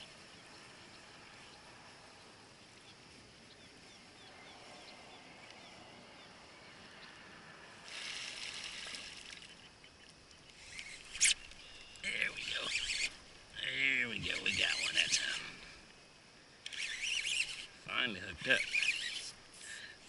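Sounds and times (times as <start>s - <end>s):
faint chirps: 0.0s - 20.0s.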